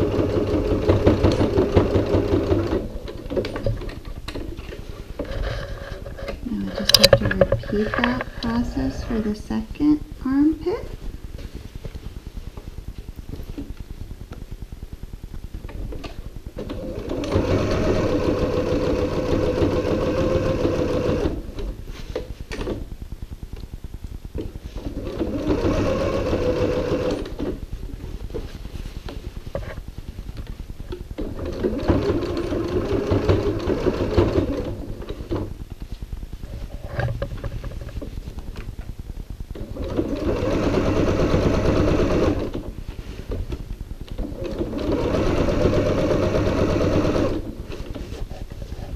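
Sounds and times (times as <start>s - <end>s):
sewing machine stitching: 0.0s - 3.9s, 16.6s - 21.6s, 24.8s - 27.6s, 31.2s - 35.5s, 39.6s - 42.6s, 44.2s - 48.0s.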